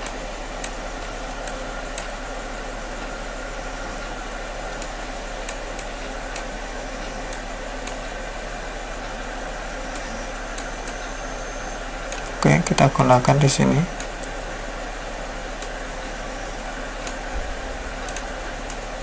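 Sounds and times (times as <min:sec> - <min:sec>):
computer mouse clicking: 0:00.0 - 0:02.1, 0:04.7 - 0:08.0, 0:09.9 - 0:11.1, 0:12.1 - 0:12.3, 0:14.0 - 0:14.4, 0:15.6 - 0:15.8, 0:18.0 - 0:18.8
low hum: 0:00.0 - 0:19.0
microphone hiss: 0:00.0 - 0:19.0.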